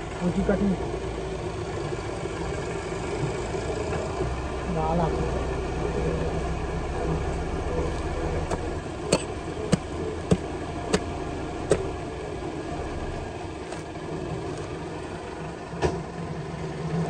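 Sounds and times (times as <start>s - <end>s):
engine running: 0.0s - 17.0s
hatchet chopping roots: 8.5s - 12.0s, 13.6s - 14.0s.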